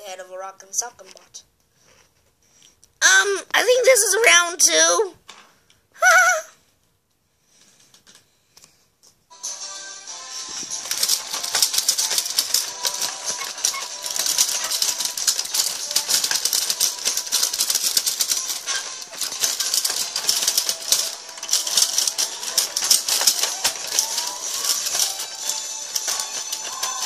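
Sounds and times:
hard plastic clattering: 10.4 - 27.0.

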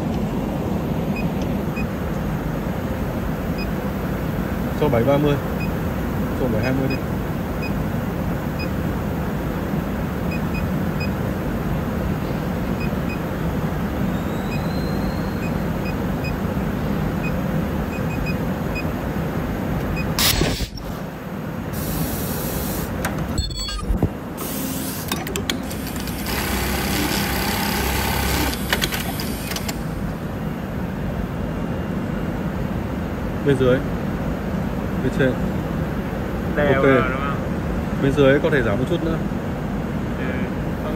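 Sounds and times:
pneumatic air hiss: 20.2 - 21.1, 21.7 - 23.0, 24.4 - 25.2
touchscreen key beeps: 23.3 - 24.0
sewing machine motor hum: 24.4 - 30.0.

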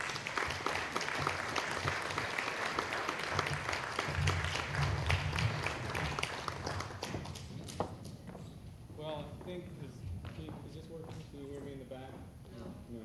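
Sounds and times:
audience applauding: 0.0 - 7.8.

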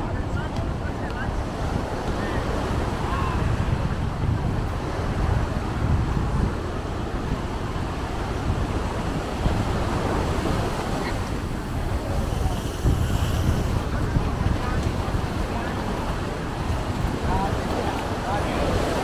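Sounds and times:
surf: 0.0 - 19.0
wind buffeting microphone: 0.0 - 19.0
road traffic: 10.6 - 17.0.

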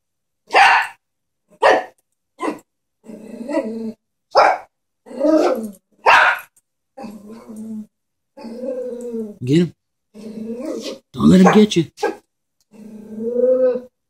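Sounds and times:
small dog barking: 0.5 - 1.0, 1.6 - 2.7, 4.3 - 4.7, 5.4 - 6.5, 10.8 - 12.3.

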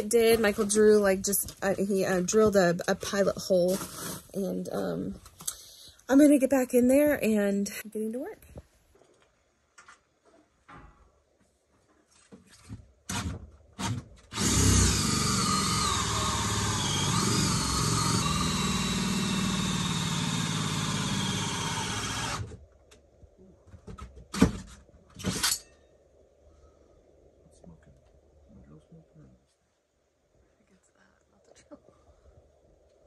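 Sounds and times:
drill cutting with hole saw: 14.3 - 22.5.

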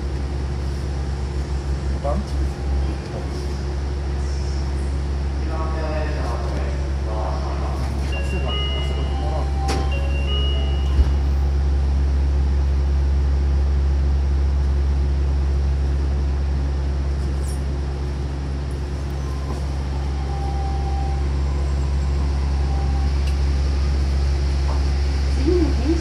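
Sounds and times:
monorail car humming: 0.0 - 26.0.

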